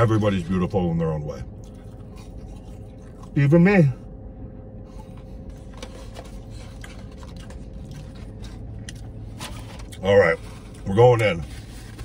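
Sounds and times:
low hum inside car: 0.0s - 12.0s
person chewing fries: 1.4s - 3.4s, 4.8s - 10.0s.

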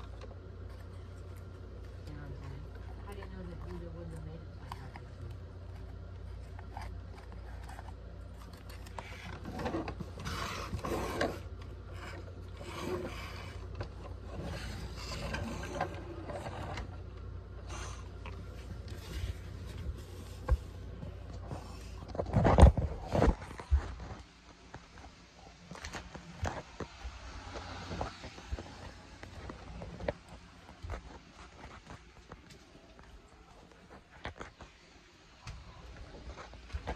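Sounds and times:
plastic toys scraping on floor: 8.6s - 17.9s.

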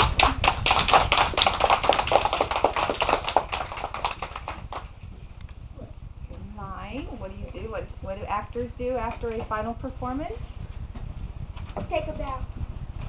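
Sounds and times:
children clapping: 0.0s - 4.9s.

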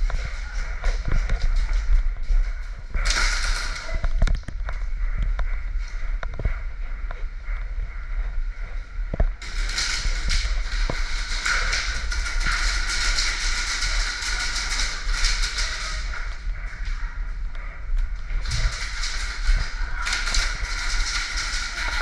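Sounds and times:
steady low rumble: 0.0s - 22.0s
airsoft guns firing: 3.0s - 4.3s, 9.4s - 16.6s, 18.3s - 22.0s.

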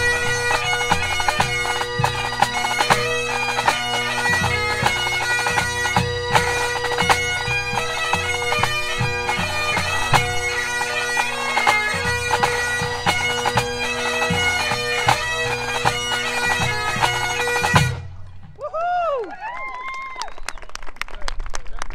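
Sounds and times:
bagpipes playing fast melody: 0.0s - 18.5s.

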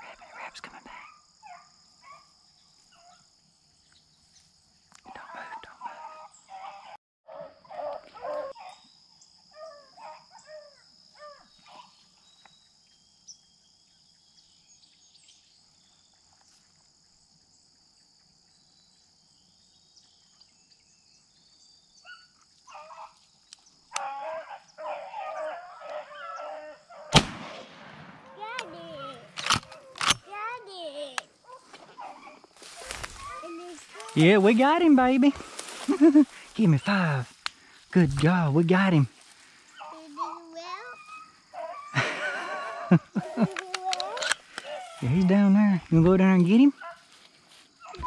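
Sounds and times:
dogs baying: 5.2s - 8.9s, 22.1s - 23.2s, 23.9s - 27.1s, 28.2s - 30.6s, 31.4s - 34.4s, 39.8s - 45.2s, 46.8s - 47.1s
shotgun shot: 27.1s - 28.8s.

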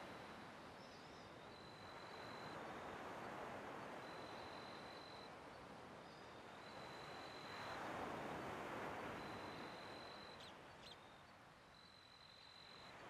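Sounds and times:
thin high whistle: 9.2s - 10.5s.

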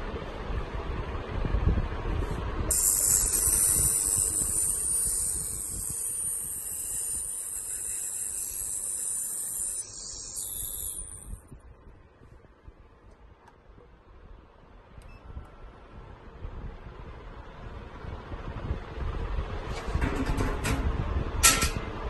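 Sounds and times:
ultrasonic stirrer high-pitched hiss: 2.7s - 11.4s.

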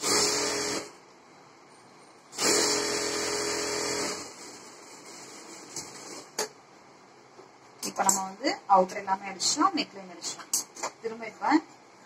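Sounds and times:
sewing machine stitching: 2.4s - 6.3s.

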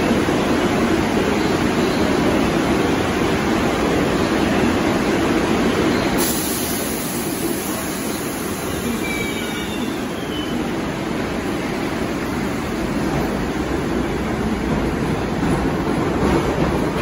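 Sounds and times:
subway train rumble: 0.0s - 17.0s
faint high squeal: 8.0s - 10.7s.

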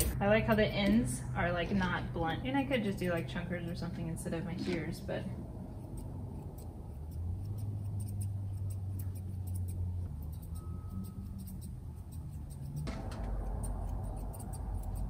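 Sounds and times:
low hum: 0.0s - 15.0s
grooming shears snipping: 5.8s - 15.0s.

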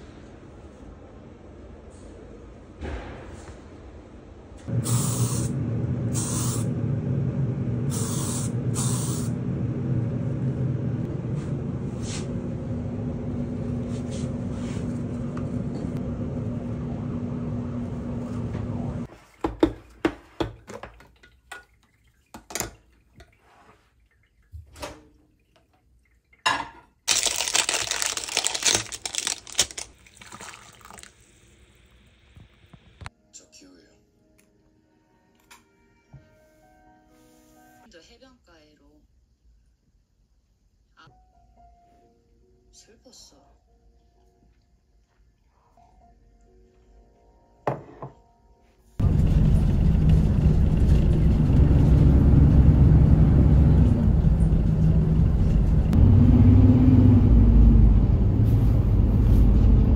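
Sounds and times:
low hum: 0.0s - 19.1s, 49.0s - 59.9s
water poured into a mug: 29.1s - 31.4s.

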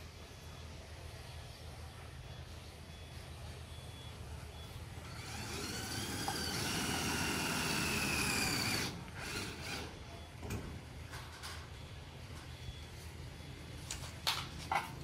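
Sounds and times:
electric drill whine: 5.0s - 10.0s.

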